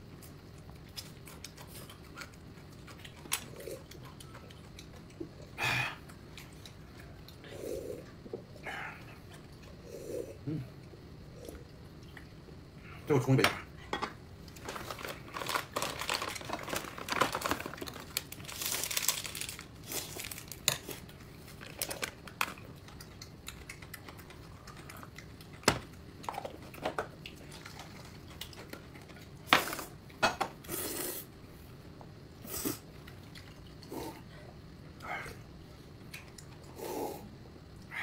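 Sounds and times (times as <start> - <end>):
crinkling and rustling: 14.4 - 23.0.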